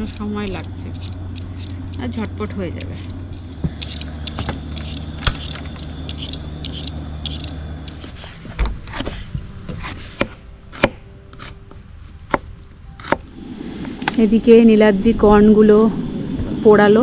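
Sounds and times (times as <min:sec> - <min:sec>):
peeler scraping potatoes: 0:00.0 - 0:11.6
low engine hum: 0:00.0 - 0:17.0.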